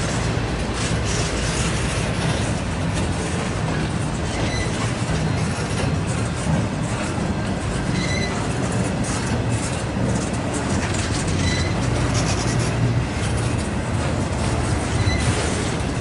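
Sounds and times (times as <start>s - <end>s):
train wheels rumbling on rail: 0.0s - 16.0s
high wheel squeaks: 4.2s - 5.8s, 7.8s - 9.8s, 10.8s - 13.6s, 14.6s - 16.0s.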